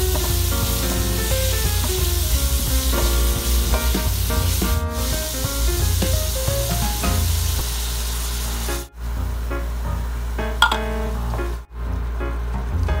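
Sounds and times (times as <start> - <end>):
background music with bass line: 0.0 - 7.5
food sizzling in a frying pan: 0.0 - 8.9.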